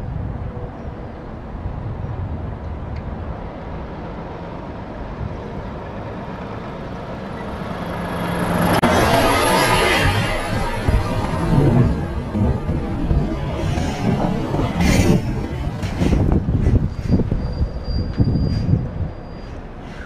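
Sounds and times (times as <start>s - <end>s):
truck engine rumbling: 6.4s - 20.0s.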